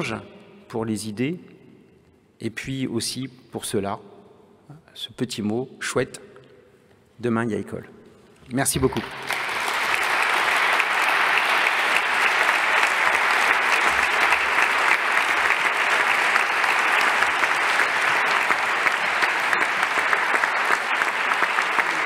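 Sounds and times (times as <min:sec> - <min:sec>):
audience applause: 0:09.0 - 0:22.0.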